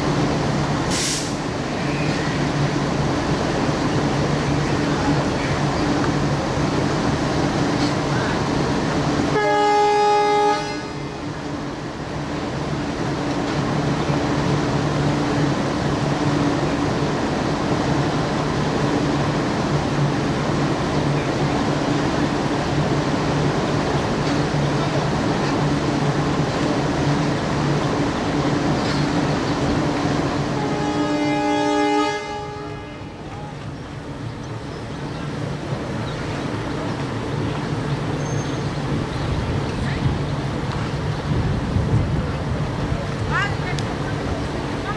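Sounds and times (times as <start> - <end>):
crowd of passengers bustling: 0.0 - 44.9
train horn blast: 9.3 - 11.2, 30.5 - 33.2.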